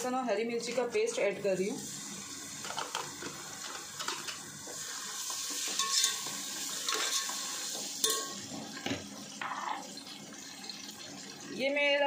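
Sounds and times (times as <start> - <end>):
food sizzling in a pot: 1.1 - 11.8
metal spoon scraping a pot: 5.6 - 8.4.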